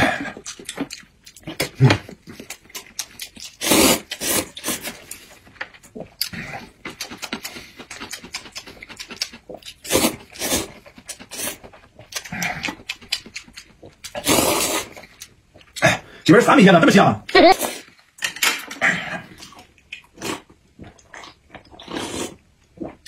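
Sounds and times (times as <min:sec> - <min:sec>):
man slurping noodles: 0:03.5 - 0:05.0, 0:09.8 - 0:11.6, 0:14.1 - 0:15.0, 0:21.8 - 0:23.0
chewing: 0:04.5 - 0:15.9, 0:19.3 - 0:23.0
wet mouth clicks: 0:06.2 - 0:10.1.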